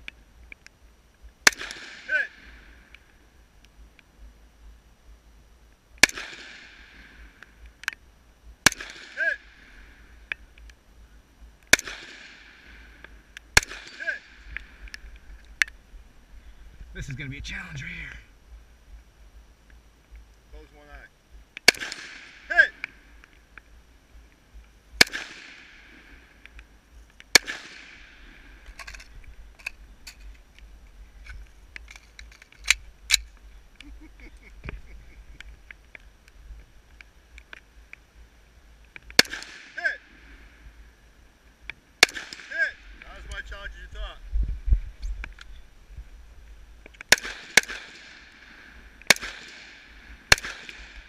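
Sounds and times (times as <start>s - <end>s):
rifle shots: 1.4s - 2.5s, 6.0s - 7.1s, 8.6s - 9.5s, 11.7s - 12.7s, 13.5s - 14.7s, 21.6s - 22.8s, 25.0s - 25.9s, 27.3s - 29.0s, 39.2s - 40.0s, 42.0s - 43.2s, 47.0s - 51.0s
sharp cracks: 1.4s - 4.1s, 6.0s - 8.0s, 8.6s - 10.8s, 11.6s - 15.8s, 21.5s - 23.7s, 24.3s - 38.0s, 38.8s - 40.5s, 41.6s - 43.6s, 46.8s - 51.0s.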